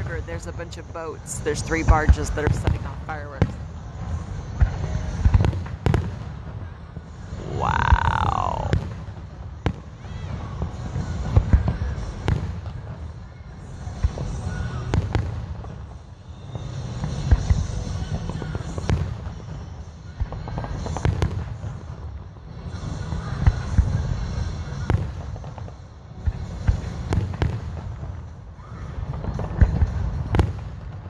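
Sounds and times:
fireworks booming: 0:00.0 - 0:13.2, 0:13.8 - 0:31.0
fireworks crackling: 0:00.0 - 0:31.0.

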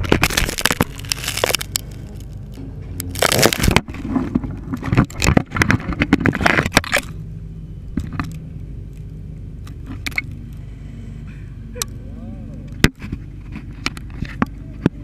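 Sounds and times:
branches and leaves scraping: 0:00.0 - 0:07.1.

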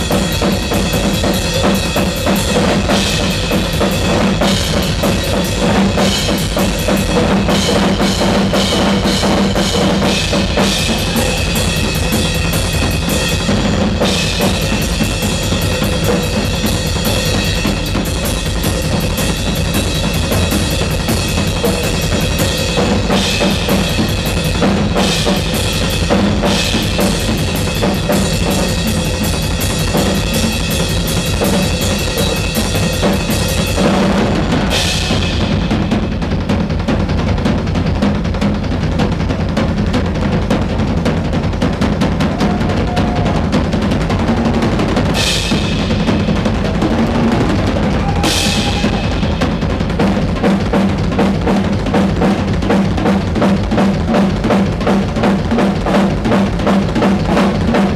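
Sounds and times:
cymbals crashing: 0:00.0 - 0:24.2, 0:42.1 - 0:50.4
drum solo: 0:00.0 - 0:57.9.

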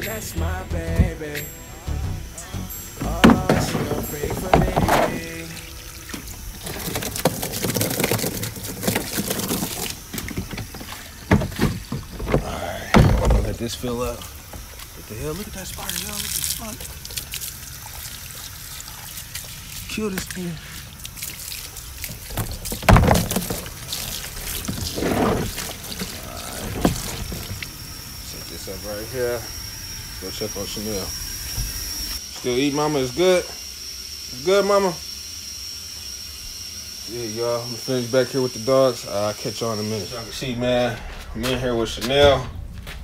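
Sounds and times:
water sloshing in a bucket: 0:03.1 - 0:29.0.

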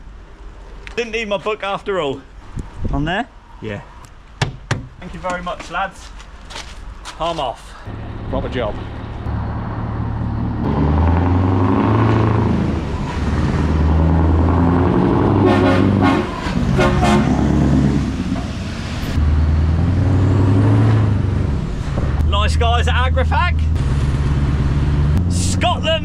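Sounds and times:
diesel truck engine pulling away: 0:07.9 - 0:26.0
air horn blasts: 0:15.3 - 0:17.7.

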